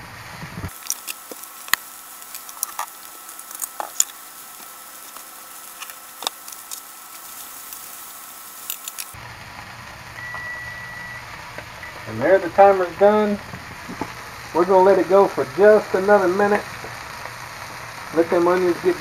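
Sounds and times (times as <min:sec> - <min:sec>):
steak and onions sizzling: 0:00.0 - 0:19.0
sharp clicks: 0:00.7 - 0:09.2.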